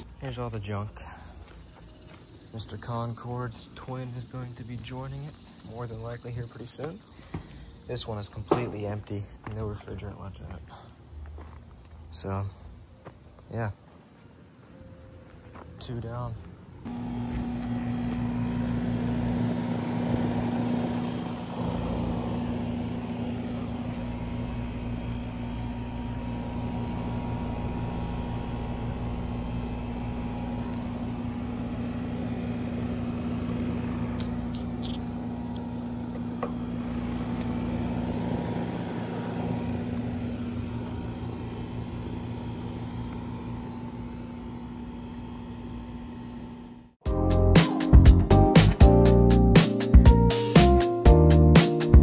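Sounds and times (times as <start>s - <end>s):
air conditioner unit humming: 16.6s - 47.0s.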